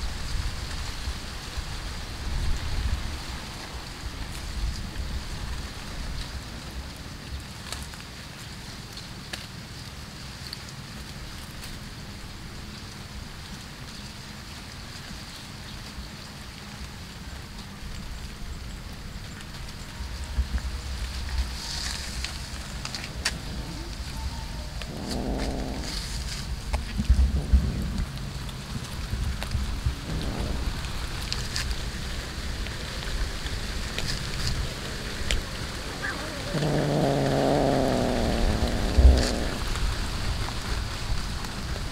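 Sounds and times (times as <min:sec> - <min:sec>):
steady hiss: 0:11.9 - 0:41.9
low rumble: 0:20.3 - 0:41.5
cat chewing: 0:21.8 - 0:27.0, 0:33.9 - 0:39.9.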